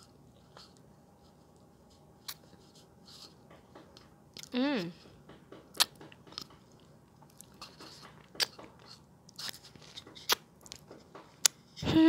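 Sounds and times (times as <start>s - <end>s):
wet chewing: 5.7s - 11.6s
lip smacks: 10.2s - 10.8s.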